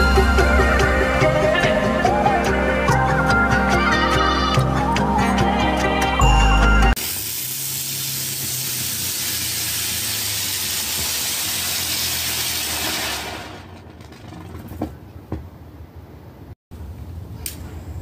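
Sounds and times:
firework spraying sparks with hiss: 0:07.0 - 0:13.7.

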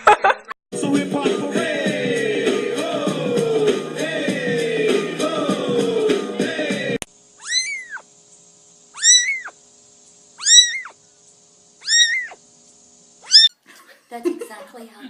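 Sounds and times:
music: 0:00.7 - 0:07.0
kitten meowing: 0:07.4 - 0:08.0, 0:09.0 - 0:09.6, 0:10.4 - 0:11.0, 0:11.8 - 0:12.4, 0:13.2 - 0:13.5.

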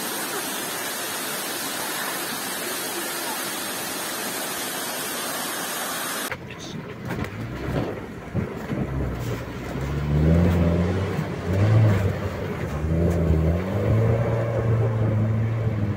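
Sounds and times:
car engine pulling under load: 0:06.3 - 0:15.9.

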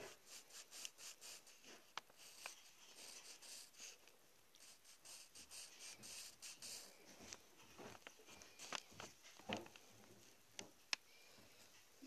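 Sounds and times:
pencil scratching on paper: 0:00.0 - 0:09.2.

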